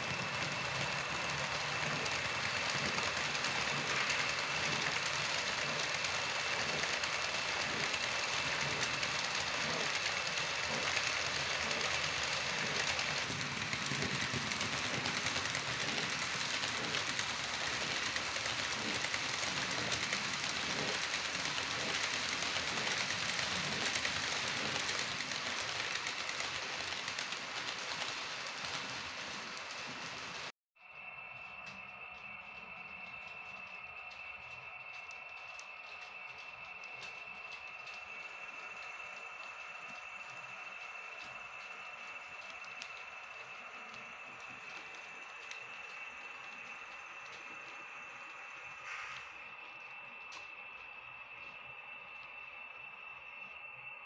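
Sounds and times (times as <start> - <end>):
model train motor whirring: 0.0 - 30.5, 31.5 - 54.0
clicking over rail joints: 31.6 - 52.4.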